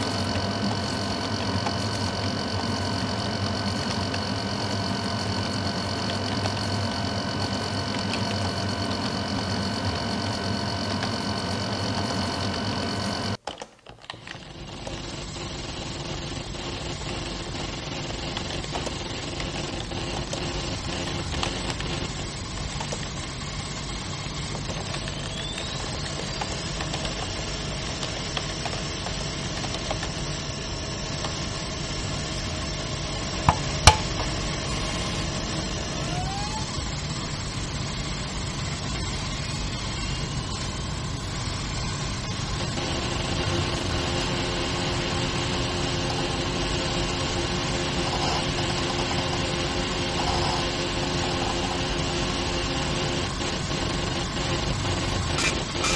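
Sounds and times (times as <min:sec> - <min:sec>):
machine hum and cooling fans: 0:00.0 - 0:13.4, 0:14.4 - 0:55.9
short rising tones: 0:31.7 - 0:46.9.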